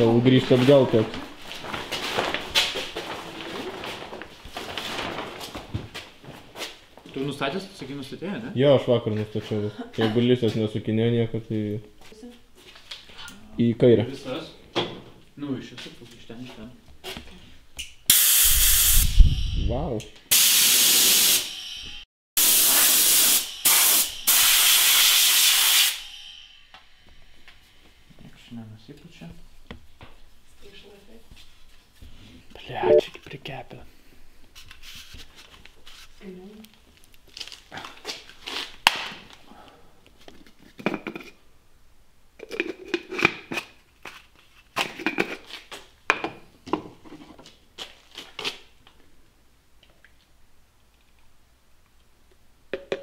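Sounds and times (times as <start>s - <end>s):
spray gun hissing: 18.1s - 19.1s, 20.3s - 21.5s, 22.4s - 26.1s.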